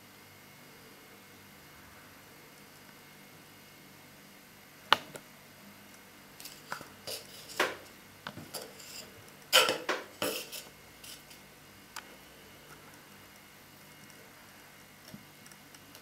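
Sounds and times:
wood scraping: 6.4s - 11.4s.

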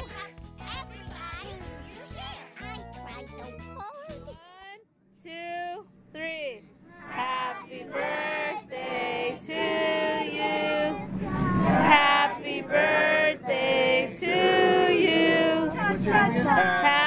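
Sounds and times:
group of people singing: 7.1s - 17.0s.

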